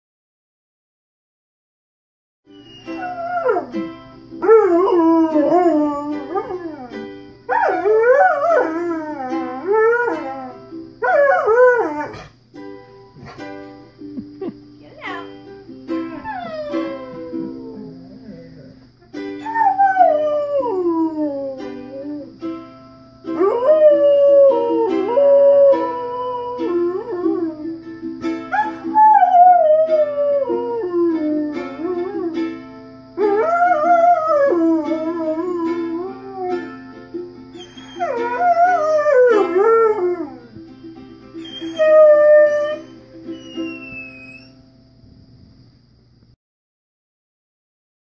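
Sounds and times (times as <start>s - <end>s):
dog howling: 2.7s - 3.7s, 4.4s - 6.9s, 7.5s - 12.3s, 16.1s - 18.8s, 19.4s - 22.3s, 23.4s - 27.8s, 28.5s - 32.4s, 33.2s - 36.7s, 37.6s - 40.6s, 41.4s - 44.6s
strummed ukulele chords: 2.8s - 7.5s, 8.6s - 11.0s, 12.5s - 18.2s, 19.0s - 19.6s, 21.5s - 23.6s, 24.4s - 29.0s, 30.0s - 33.3s, 34.4s - 41.5s, 42.8s - 43.7s.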